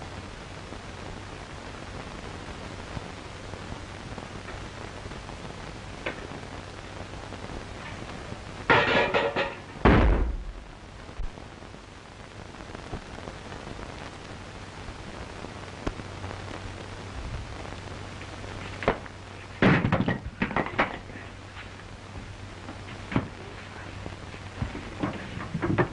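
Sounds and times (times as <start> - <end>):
film soundtrack hum and hiss: 0.0 - 25.9
heavy thud: 8.7 - 10.6
knocks and bangs: 8.7 - 10.6.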